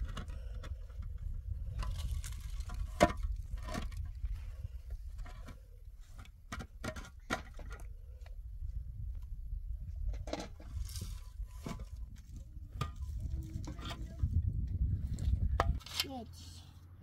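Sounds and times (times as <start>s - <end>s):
block scraping on soil: 0.0s - 7.7s, 10.1s - 14.3s.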